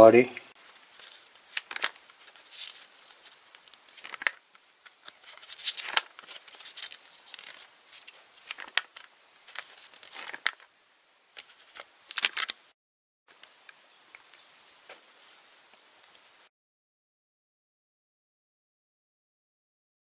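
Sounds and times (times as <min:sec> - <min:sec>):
book pages rustling: 0:00.6 - 0:10.7, 0:11.4 - 0:12.6.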